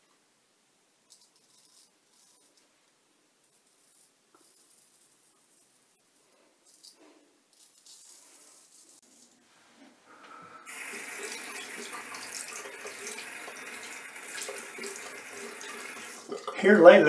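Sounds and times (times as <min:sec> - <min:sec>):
water running into sink: 0:10.7 - 0:16.8.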